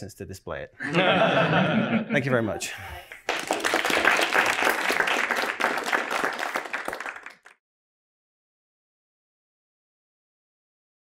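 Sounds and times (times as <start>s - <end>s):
audience applauding: 3.1s - 7.6s.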